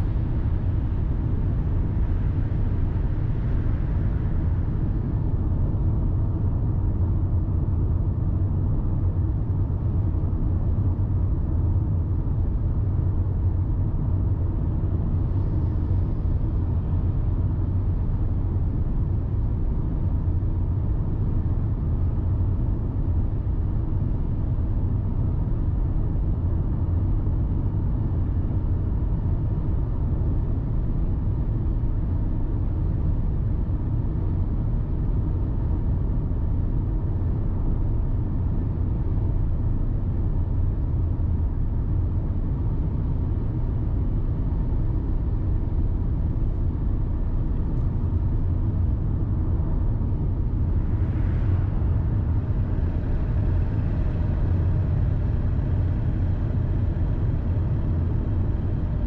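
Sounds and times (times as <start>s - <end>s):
car driving engine and tyre rumble: 37.4s - 59.0s.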